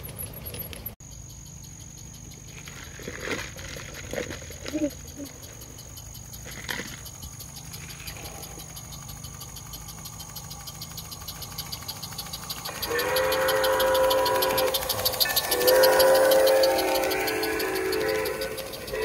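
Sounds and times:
steam locomotive whistle: 0:12.7 - 0:19.0.

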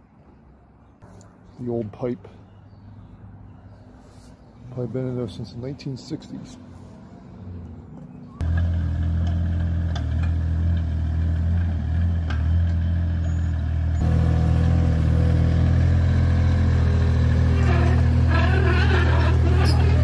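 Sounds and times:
excavator diesel engine running: 0:08.4 - 0:20.0.

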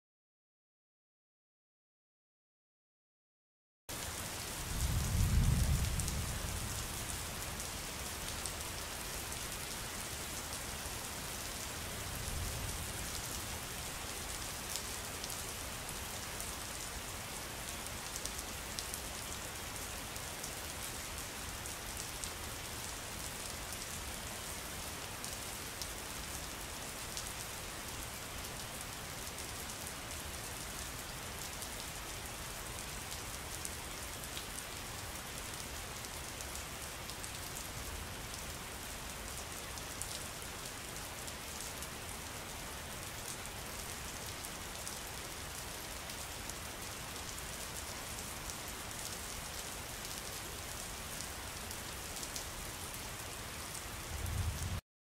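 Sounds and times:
rain falling: 0:03.9 - 0:54.8
low rumble of thunder: 0:04.7 - 0:06.9, 0:54.1 - 0:54.8.

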